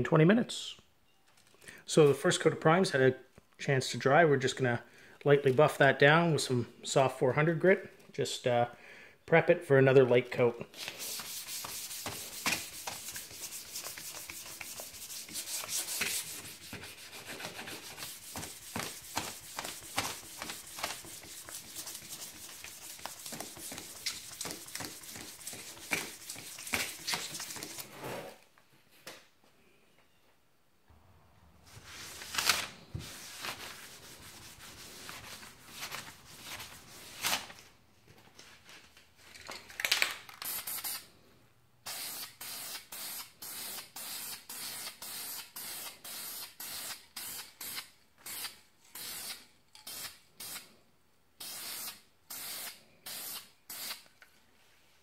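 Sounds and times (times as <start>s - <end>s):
sandpaper rubbing: 10.8s - 28.0s, 31.7s - 37.2s
aerosol spray hisses: 51.4s - 54.0s.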